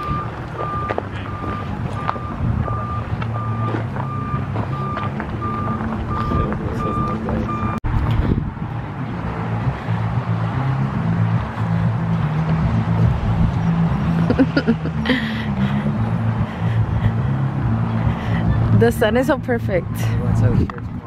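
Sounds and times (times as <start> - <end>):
reversing beeper beeps: 0.0 - 7.8
low engine rumble: 0.0 - 21.0.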